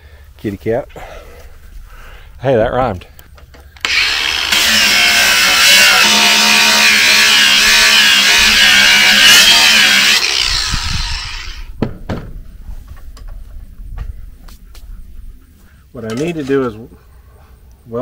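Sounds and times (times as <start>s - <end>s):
angle grinder grinding steel: 3.8s - 11.7s.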